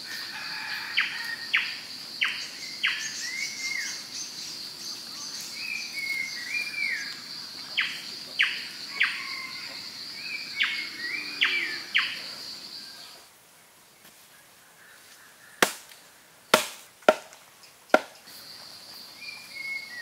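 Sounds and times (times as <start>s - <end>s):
birds whistling and warbling: 1.0s - 13.2s, 18.2s - 20.0s.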